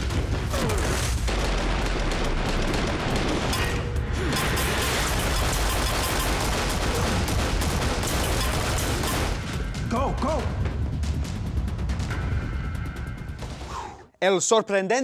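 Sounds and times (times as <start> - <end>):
rapid pistol gunfire: 0.0 - 9.6
action score music: 0.0 - 14.2.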